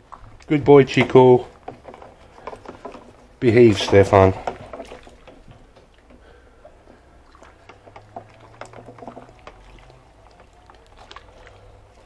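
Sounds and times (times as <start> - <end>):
water pouring into dish: 6.8 - 12.0.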